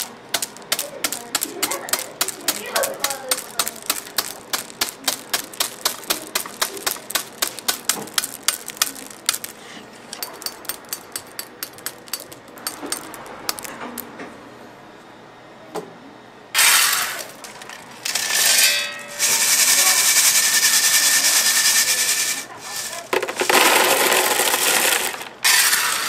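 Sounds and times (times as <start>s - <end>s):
cleaver chopping hard candy: 0.0s - 9.5s.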